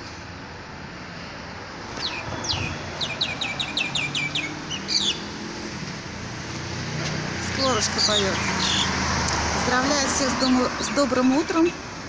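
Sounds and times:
songbird chirping: 0:01.9 - 0:05.8, 0:07.4 - 0:09.0.

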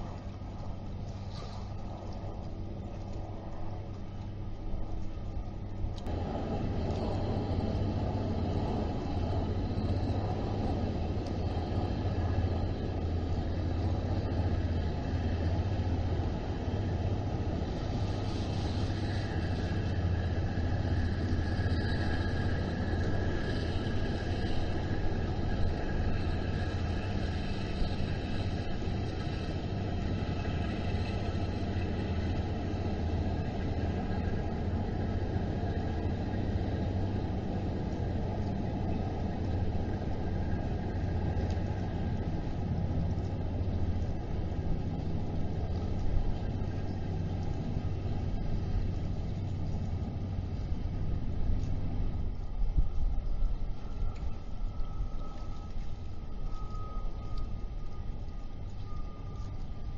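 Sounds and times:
faint higher hum: 0:00.0 - 0:59.9
steady low rumble: 0:00.0 - 0:59.9.

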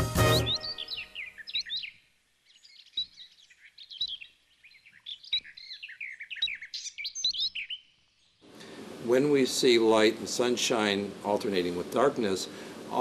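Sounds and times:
small birds chirping: 0:00.2 - 0:08.8.

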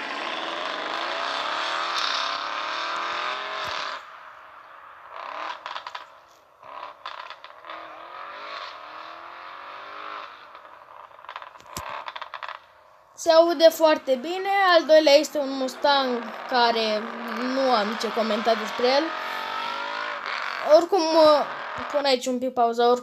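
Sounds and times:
car engine accelerating hard: 0:00.0 - 0:12.6, 0:14.8 - 0:20.7, 0:21.4 - 0:21.9
exhaust crackles: 0:00.0 - 0:22.2.

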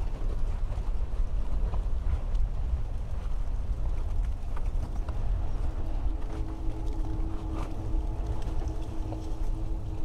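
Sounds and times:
wind buffeting microphone: 0:00.0 - 0:10.0
steady machine hum: 0:05.1 - 0:10.0.

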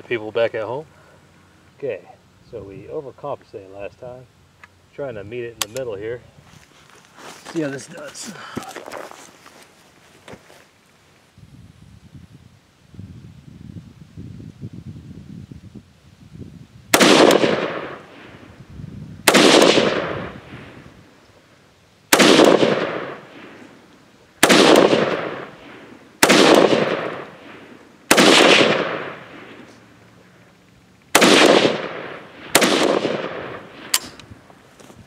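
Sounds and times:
rifle shots: 0:16.9 - 0:18.4, 0:19.2 - 0:20.8, 0:22.1 - 0:23.7, 0:24.4 - 0:29.8, 0:31.1 - 0:34.2.

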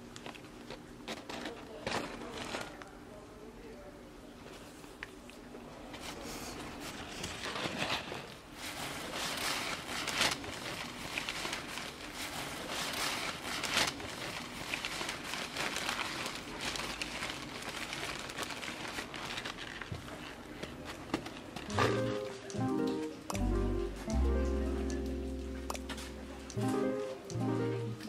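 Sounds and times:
food bag crinkling: 0:00.1 - 0:03.0, 0:06.8 - 0:23.2.

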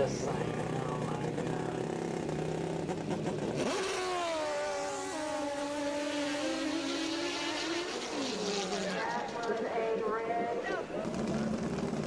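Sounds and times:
motorcycle engine high-revving: 0:00.0 - 0:09.0, 0:11.0 - 0:12.0.

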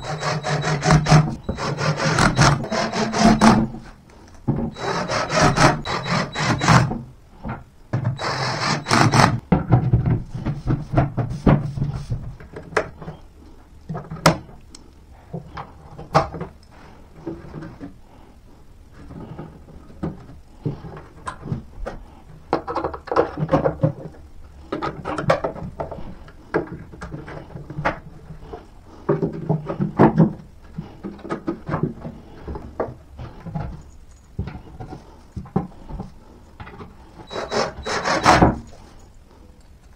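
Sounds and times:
panel rasping: 0:00.0 - 0:03.8, 0:04.7 - 0:06.9
panels scraping and rubbing: 0:00.0 - 0:07.0, 0:08.1 - 0:13.2, 0:19.0 - 0:39.1.

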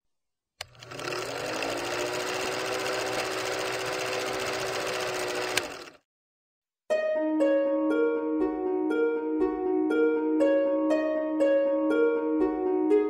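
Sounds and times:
film projector whirring and clattering: 0:00.6 - 0:06.0
projector stopping click: 0:05.0 - 0:05.9
harp music: 0:06.9 - 0:13.0.

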